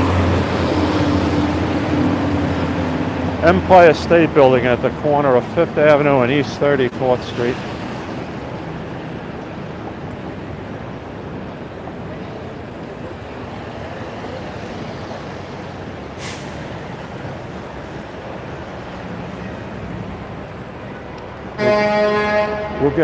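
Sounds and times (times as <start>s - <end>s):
street traffic: 0.0s - 23.0s
brief sharp hiss: 16.2s - 16.7s.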